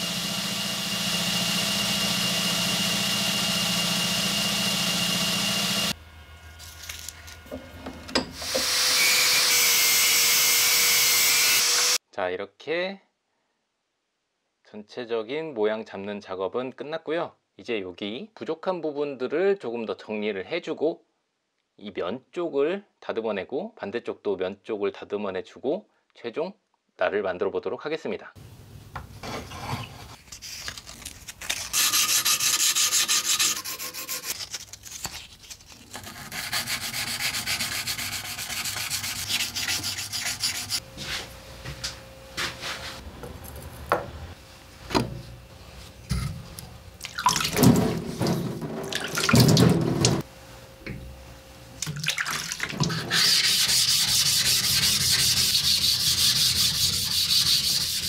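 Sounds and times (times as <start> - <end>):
rasping on a steel blade: 31.7 - 34.6, 35.9 - 40.8, 53.0 - 58.0
wet scrubbing on a whetstone: 31.7 - 34.6, 35.9 - 40.8, 52.8 - 58.0.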